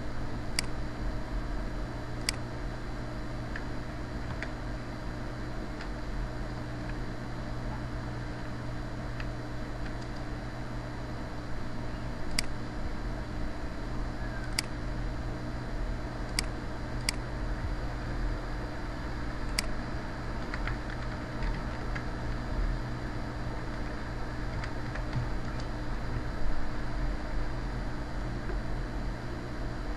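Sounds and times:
background hum and hiss: 0.0 - 29.9
computer mouse clicking: 2.2 - 2.4, 9.2 - 10.3, 12.3 - 12.6, 14.4 - 14.8, 16.3 - 17.2, 19.5 - 19.8, 20.4 - 22.1.

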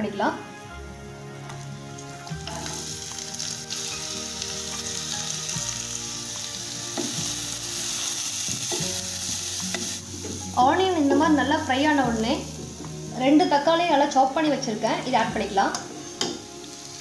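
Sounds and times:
onion sizzling in hot oil: 0.9 - 17.0.

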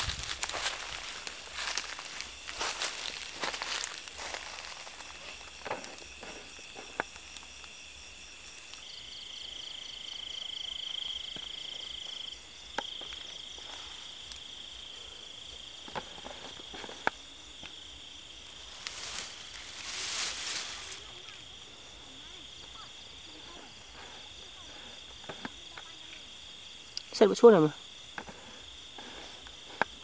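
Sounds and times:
grass rustling and snapping: 0.0 - 8.9, 12.7 - 14.5, 18.4 - 21.5
insects trilling: 0.0 - 30.0.

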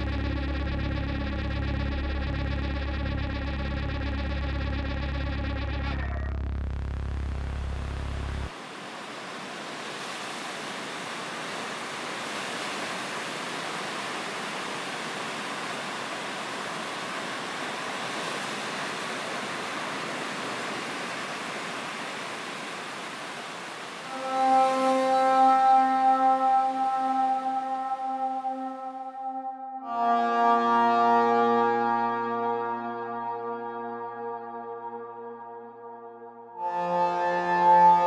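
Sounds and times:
low drone: 0.0 - 8.5
music: 0.0 - 8.5, 24.1 - 38.0
ocean surf: 8.5 - 29.4.

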